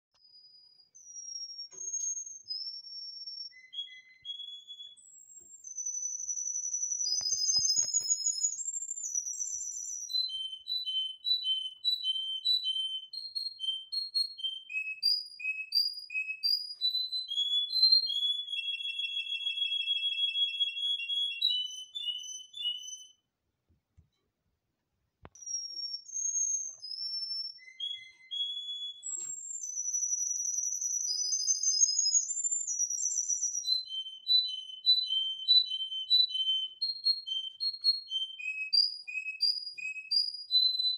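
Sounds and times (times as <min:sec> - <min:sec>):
canary singing: 0:01.0 - 0:23.2, 0:25.4 - 0:40.9.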